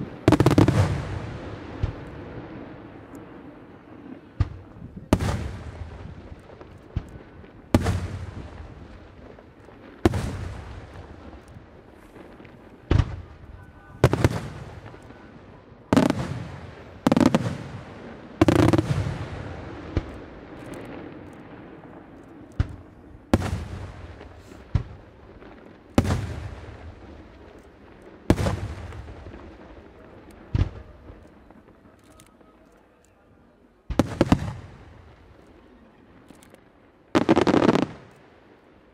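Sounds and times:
rolling echo: 0.0s - 38.9s
firework shells bursting: 18.4s - 32.4s.

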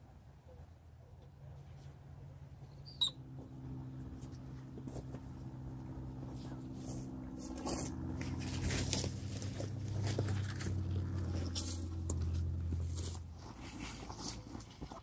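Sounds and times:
steady low hum: 0.8s - 15.0s
footsteps crunching through dry brush: 3.3s - 15.0s.

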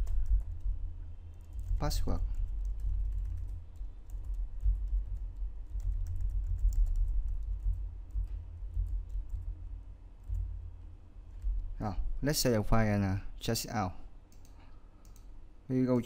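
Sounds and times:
steady low hum: 0.0s - 16.0s
keyboard typing clicks: 14.3s - 15.3s.

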